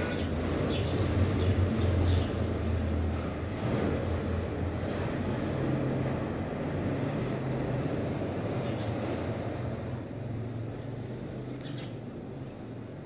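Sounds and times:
sparrow chirps: 0.0 - 2.7, 3.5 - 5.6, 8.6 - 9.0, 11.5 - 12.8
low rumble of traffic: 0.0 - 13.0.

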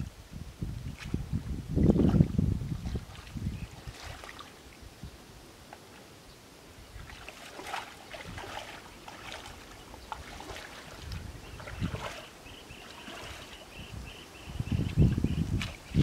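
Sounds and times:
bare feet squelching in mud: 2.8 - 4.6, 7.0 - 13.7.

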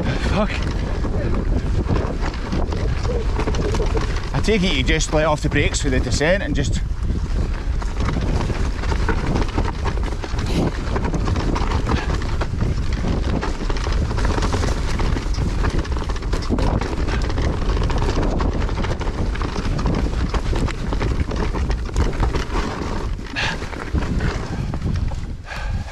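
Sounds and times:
bike clattering and rattling: 0.0 - 25.9
tyres rolling over dirt: 0.0 - 25.9
wind rumbling on microphone: 0.0 - 25.9.

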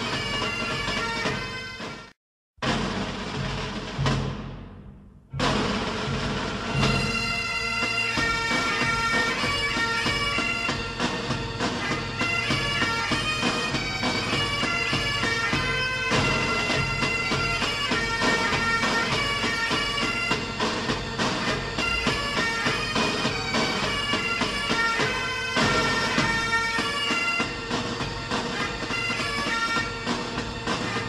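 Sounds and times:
bagpipe drone and melody: 6.8 - 31.0.

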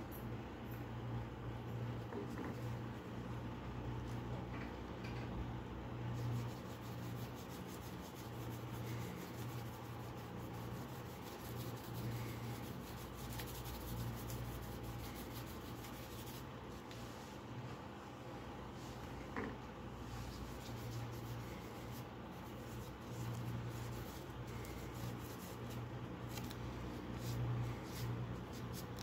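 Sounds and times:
steady low hum: 0.0 - 29.0
gloved hands rubbing wood: 20.1 - 29.0.

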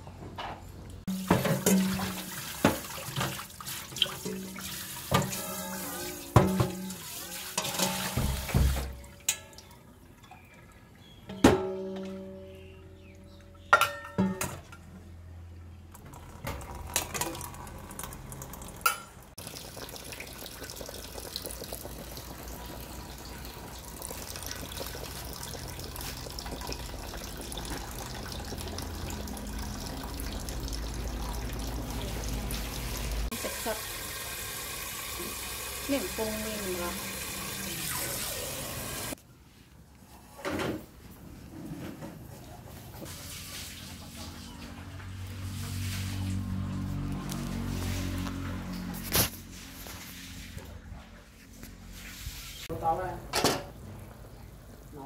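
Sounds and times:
metal clanks from sink and pot: 0.4 - 9.7, 11.2 - 14.9, 18.8 - 19.2, 53.3 - 53.8
soup boiling with steady hiss: 19.4 - 40.0, 52.8 - 55.0.

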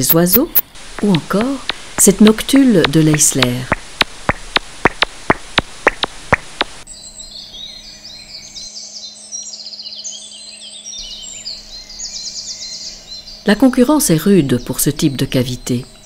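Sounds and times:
woodland birdsong: 0.0 - 16.0
hiss: 0.6 - 2.1.

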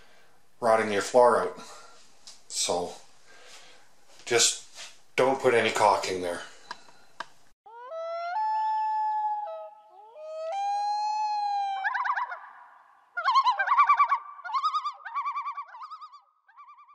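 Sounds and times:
loon wailing and tremolo calls: 7.7 - 16.9.

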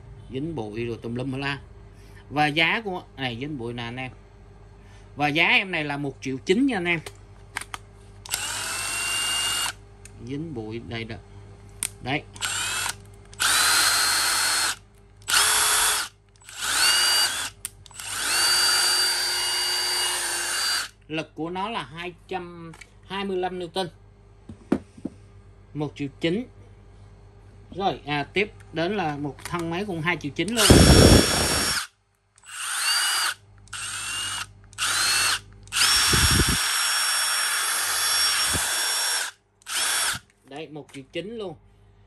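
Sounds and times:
impact driver motor whining: 8.3 - 9.8, 12.4 - 20.9, 30.6 - 40.2.

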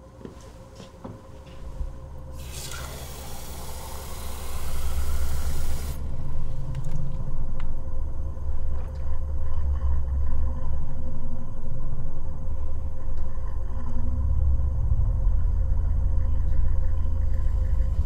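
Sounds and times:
thin steady hum: 0.0 - 18.0
deep rumbling drone: 1.2 - 18.0.

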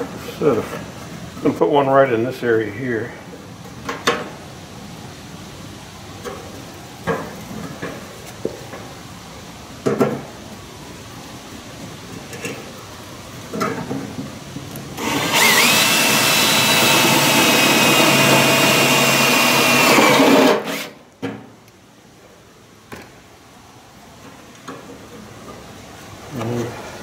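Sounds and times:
cordless drill whining through metal: 15.0 - 21.0.

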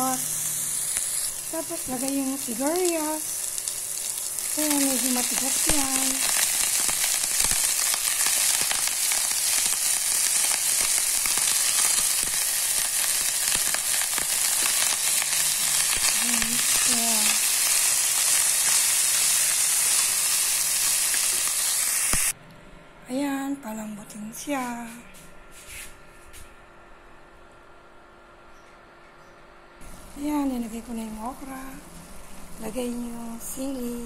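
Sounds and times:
vegetables sizzling in a pot: 0.0 - 22.3.

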